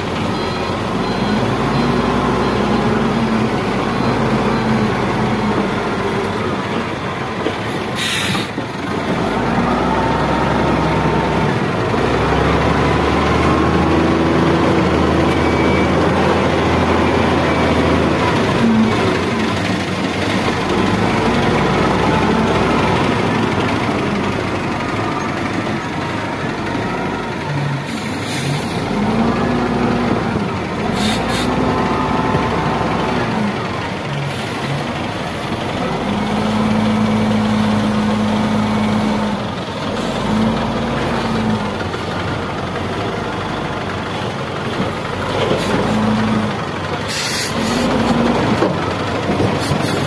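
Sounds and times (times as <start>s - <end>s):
diesel engine revving under load: 0.0s - 50.0s
short hisses: 8.0s - 8.5s, 47.1s - 47.9s.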